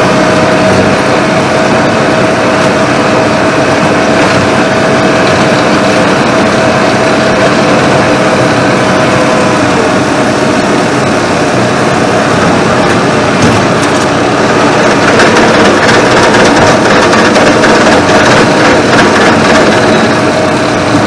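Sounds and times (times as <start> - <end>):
flail mower whine: 0.0 - 21.0
tractor engine running under load: 0.0 - 21.0.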